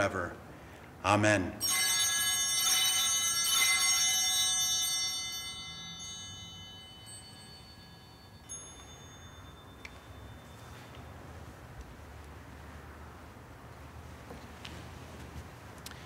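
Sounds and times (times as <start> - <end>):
altar bell ringing: 1.6 - 11.3.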